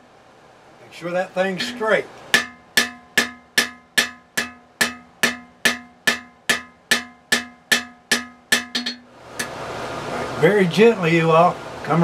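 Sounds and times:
hammer striking steel on an anvil: 1.6 - 9.6.

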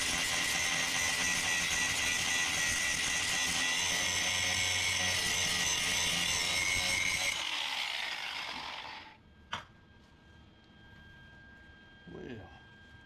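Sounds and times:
angle grinder grinding steel: 0.0 - 9.2.

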